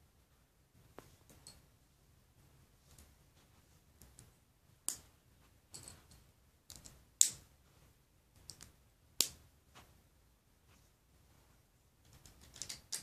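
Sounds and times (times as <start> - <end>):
plastic bricks clicking together: 12.1 - 13.0.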